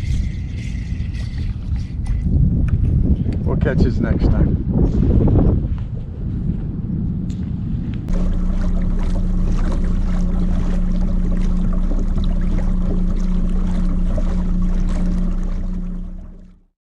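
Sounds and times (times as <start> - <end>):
electric trolling motor humming: 8.0 - 16.7
water rushing along hull: 8.1 - 16.7.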